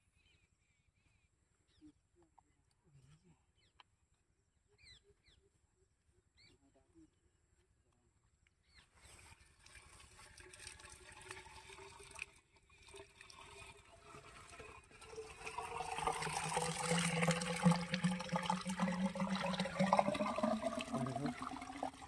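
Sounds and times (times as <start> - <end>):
water pouring and gurgling: 9.3 - 22.0.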